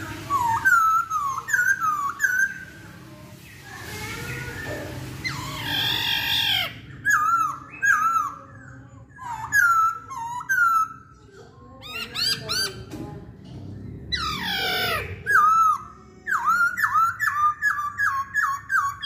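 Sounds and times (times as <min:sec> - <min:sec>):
bird singing whistled notes: 0:00.2 - 0:02.7.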